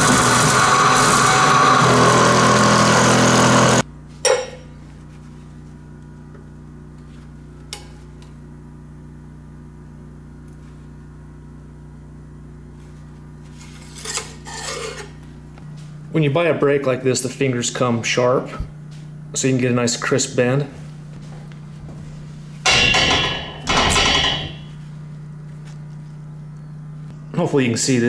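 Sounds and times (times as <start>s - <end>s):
milling machine cutting metal: 0.0s - 3.8s, 22.7s - 24.7s
low steady hum: 3.8s - 28.0s
sharp metallic clank: 4.2s - 4.7s, 22.6s - 24.7s.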